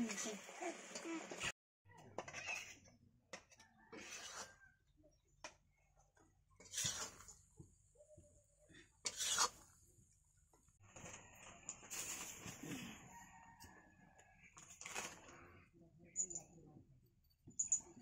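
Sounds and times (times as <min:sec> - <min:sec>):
spatula scraping metal pan: 0:02.2 - 0:04.6, 0:06.6 - 0:07.4, 0:09.0 - 0:09.6.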